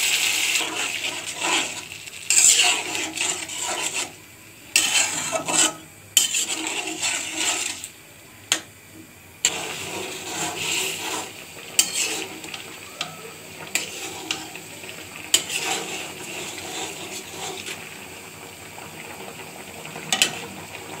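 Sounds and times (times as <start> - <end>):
metal spatula scraping a pan: 0.0 - 7.9, 9.4 - 17.9, 20.1 - 20.5
curry bubbling at a simmer: 0.0 - 21.0.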